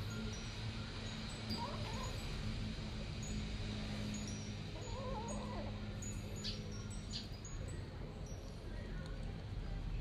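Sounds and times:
steady background hum: 0.0s - 10.0s
wavering animal call: 4.8s - 5.8s.

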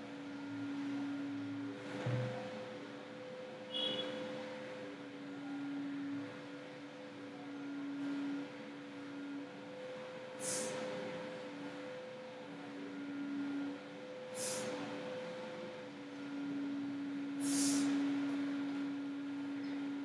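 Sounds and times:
steady background hum: 0.0s - 20.0s
short hissing sounds: 10.4s - 10.8s, 14.3s - 14.8s, 17.4s - 18.0s.

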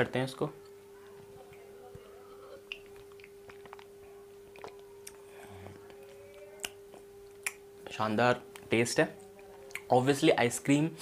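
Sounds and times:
faint steady hum: 0.0s - 11.0s
person sipping and swallowing: 2.4s - 5.9s
mouth and lip clicks: 2.6s - 5.2s, 5.9s - 7.6s.

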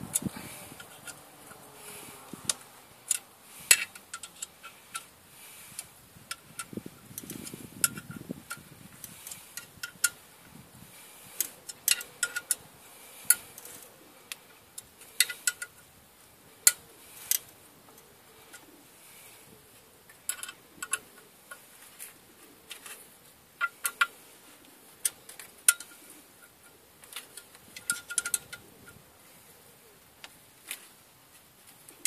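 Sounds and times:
hand ratchet clicking: 2.5s - 10.2s, 11.3s - 12.6s, 15.1s - 15.8s, 27.2s - 28.6s.

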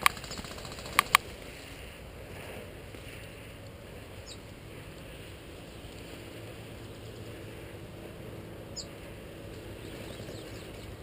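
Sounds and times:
sharp clicks: 0.0s - 1.2s.

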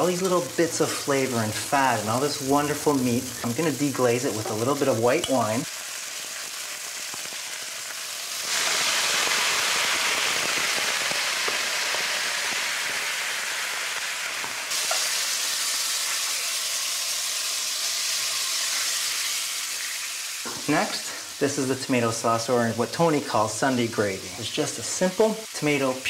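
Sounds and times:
meat sizzling in a pan: 0.0s - 26.0s
wine hissing in hot pan: 0.0s - 26.0s.

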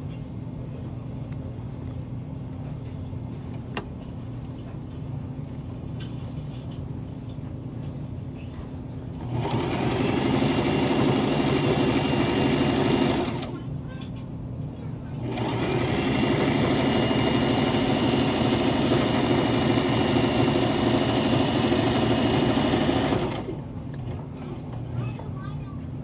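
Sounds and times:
low steady hum: 0.0s - 22.3s
sewing machine rattling: 9.2s - 13.6s, 15.2s - 23.6s.

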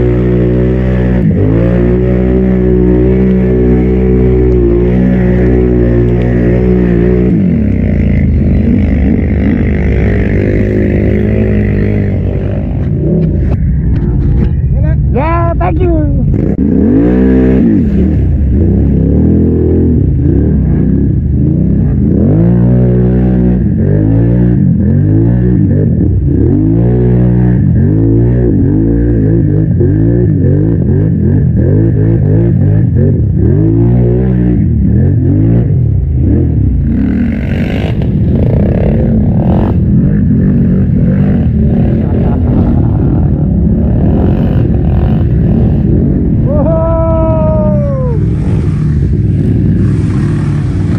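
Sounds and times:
quad bike engine revving: 0.0s - 50.9s
noisy wash of sound: 41.0s - 50.9s.

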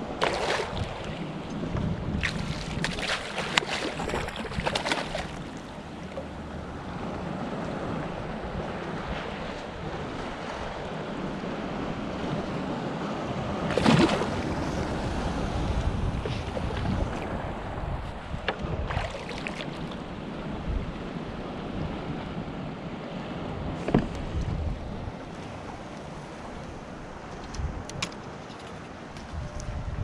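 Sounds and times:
wind on the microphone: 0.0s - 5.8s, 6.6s - 30.0s
fish splashing at the surface: 0.2s - 1.1s, 2.2s - 5.6s, 13.7s - 15.0s
lapping water: 2.2s - 5.8s, 13.7s - 15.0s, 16.2s - 17.4s.

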